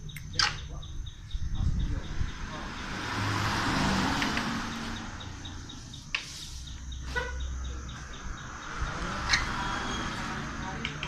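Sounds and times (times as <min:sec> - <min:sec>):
checkers pieces clicking on wooden board: 0:10.8 - 0:11.0.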